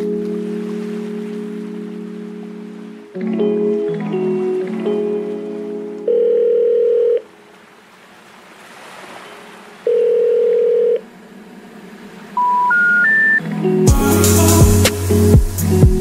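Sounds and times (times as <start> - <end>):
rising telephone information tones: 6.1 - 7.3, 9.9 - 11.0, 12.4 - 13.8
telephone ringing tone: 6.1 - 7.3, 9.9 - 11.0, 12.4 - 13.4.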